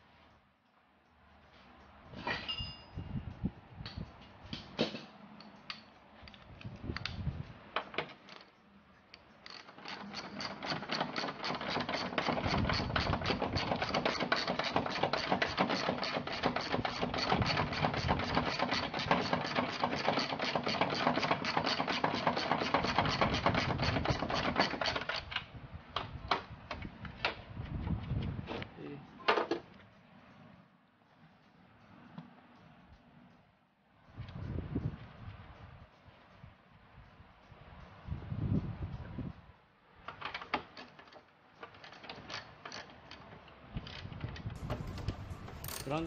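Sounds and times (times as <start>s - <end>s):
tools tapping on metal: 2.2s - 3.0s, 44.6s - 46.0s
ratchet wrench clicking: 9.1s - 25.2s, 44.6s - 46.0s.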